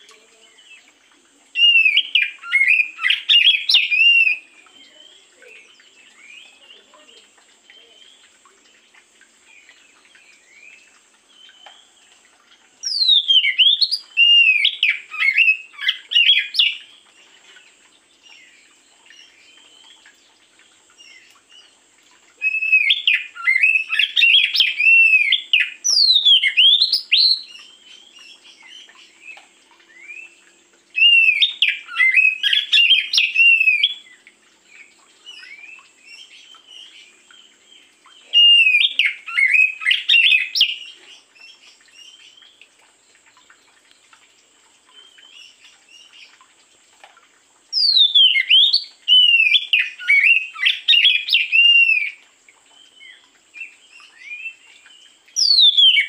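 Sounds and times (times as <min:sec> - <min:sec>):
songbird whistled phrases: 0:01.6 - 0:08.1, 0:12.8 - 0:16.8, 0:22.4 - 0:27.7, 0:31.0 - 0:34.0, 0:38.2 - 0:40.9, 0:47.8 - 0:52.2, 0:55.4 - 0:56.0.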